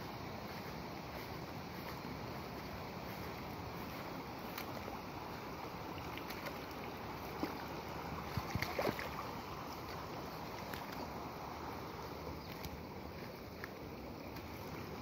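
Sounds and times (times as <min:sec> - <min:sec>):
floodwater rushing: 0:00.1 - 0:15.0.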